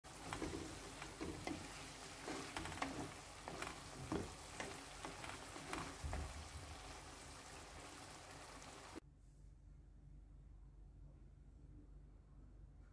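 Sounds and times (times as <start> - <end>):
vegetables sizzling in oil: 0.0 - 9.0
wooden spatula scraping: 0.0 - 9.0.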